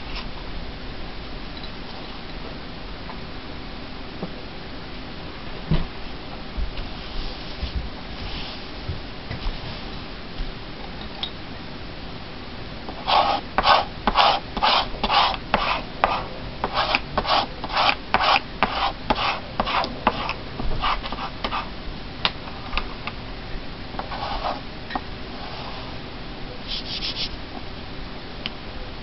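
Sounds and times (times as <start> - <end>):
hand rubbing paper: 13.0 - 21.7, 24.0 - 24.6, 26.6 - 27.4.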